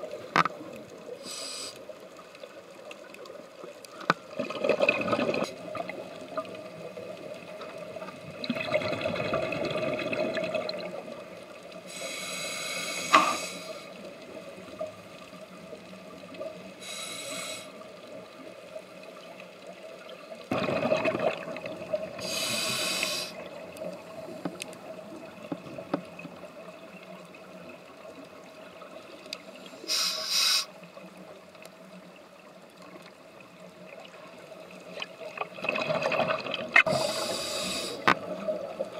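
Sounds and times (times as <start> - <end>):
faint steady hum: 0.0 - 35.8, 36.8 - 38.9
regulator inhalation hiss: 1.2 - 1.9, 11.8 - 14.0, 16.8 - 17.8, 22.2 - 23.5, 29.6 - 30.8, 36.9 - 38.1
gurgling exhaled bubbles: 4.3 - 11.3, 20.5 - 22.4, 35.2 - 37.3.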